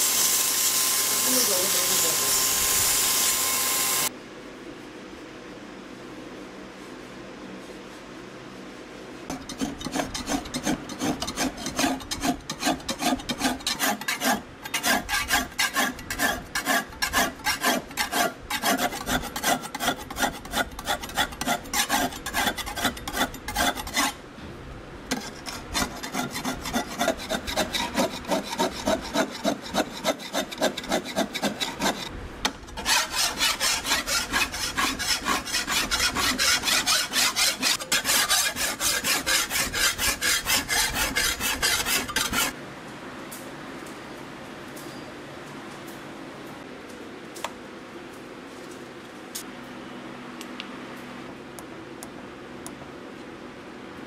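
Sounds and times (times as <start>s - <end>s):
steel file rasping on knife blade: 9.3s - 24.2s, 25.1s - 32.1s, 32.7s - 42.5s.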